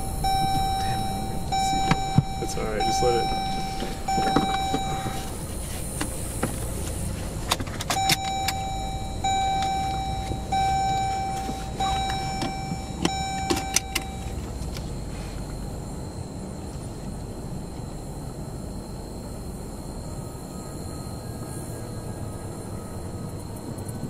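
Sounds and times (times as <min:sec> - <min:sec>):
car warning chime beeps: 0:00.0 - 0:07.2, 0:07.8 - 0:15.8
low rumble of car rolling: 0:00.0 - 0:24.0.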